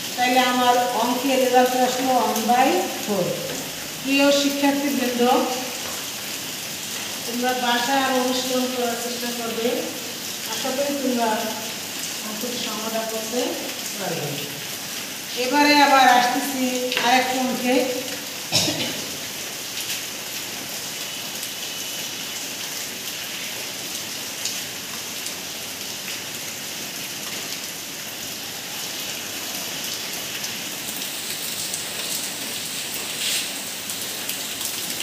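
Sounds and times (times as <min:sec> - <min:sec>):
steady hiss: 0:32.6 - 0:34.2.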